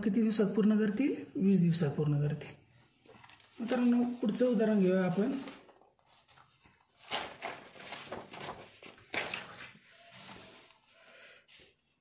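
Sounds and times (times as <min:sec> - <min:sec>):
notebook paper rustling: 0:02.8 - 0:12.0.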